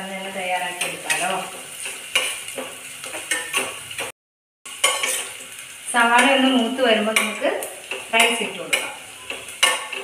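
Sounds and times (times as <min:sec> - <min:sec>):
onions sizzling: 0:00.0 - 0:10.0
spoon clinking on metal pot: 0:07.1 - 0:10.0.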